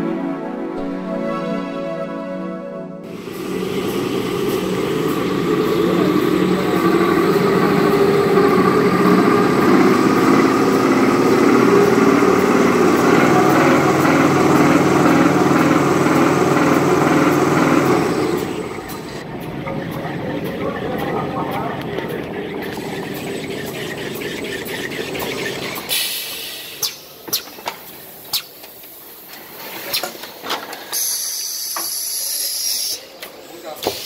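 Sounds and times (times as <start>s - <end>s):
machine hum and rumble: 3.1s - 25.9s.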